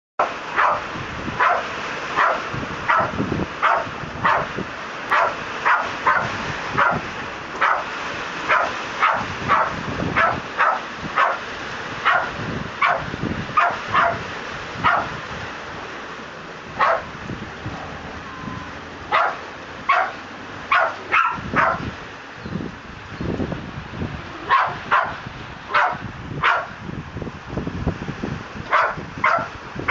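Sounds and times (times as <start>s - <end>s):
dog barking: 0.2s - 4.5s, 5.1s - 7.9s, 8.5s - 11.4s, 12.0s - 14.2s, 14.8s - 15.2s, 16.8s - 17.1s, 19.1s - 21.9s, 24.4s - 26.8s, 28.7s - 29.9s
rain hissing: 0.2s - 29.9s.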